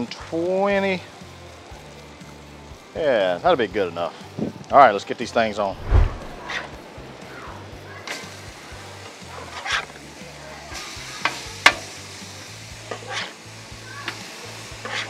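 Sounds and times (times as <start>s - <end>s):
meat sizzling on griddle: 0.0s - 5.7s, 6.4s - 15.0s
metal spatula scraping griddle: 9.4s - 9.9s, 12.9s - 13.4s, 14.8s - 15.0s.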